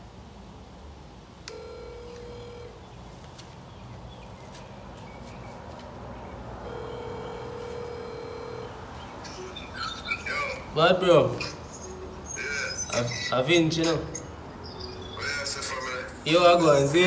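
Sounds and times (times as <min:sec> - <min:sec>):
phone ringback tone: 0:01.5 - 0:02.8, 0:06.6 - 0:09.6.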